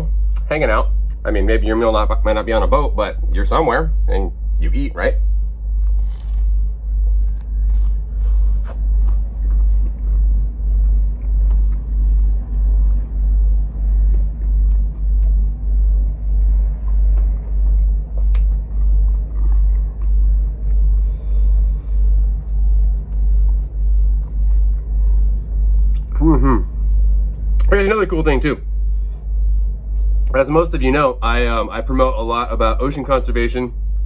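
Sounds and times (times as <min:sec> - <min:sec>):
pulsing low rumble: 0:00.0 - 0:34.0
chewing bagel: 0:05.3 - 0:26.2.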